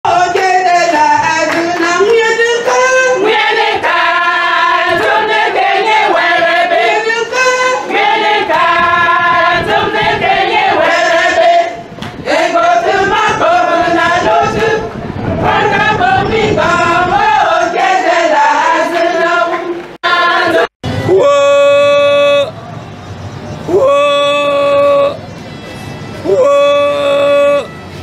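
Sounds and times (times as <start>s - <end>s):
choir singing long notes: 2.3s - 22.6s, 26.2s - 27.8s.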